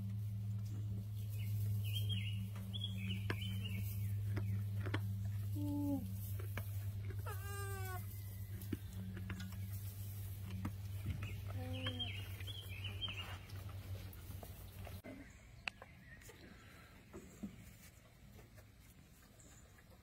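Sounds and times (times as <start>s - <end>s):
steady low hum: 0.0s - 15.6s
pitched animal calls: 7.1s - 8.2s.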